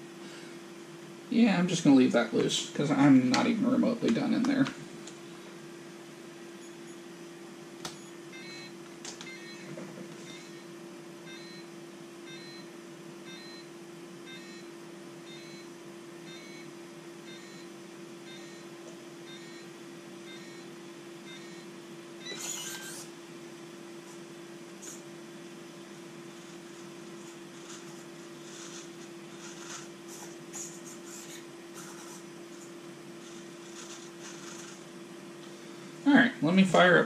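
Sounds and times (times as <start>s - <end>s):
steady low hum: 0.0s - 37.0s
short high electronic beeps: 22.2s - 23.1s.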